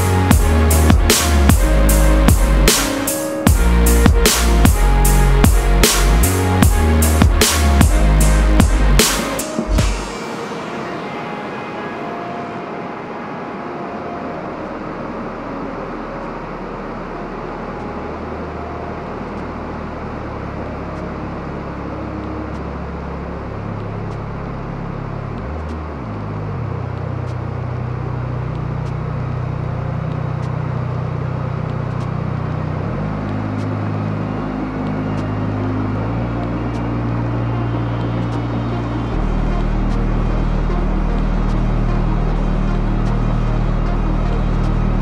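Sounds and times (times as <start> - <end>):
outdoor hiss: 0.0 - 23.0.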